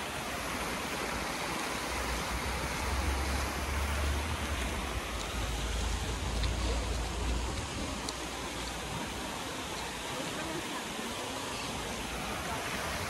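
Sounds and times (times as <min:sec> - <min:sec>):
steady rushing noise: 0:00.0 - 0:10.1.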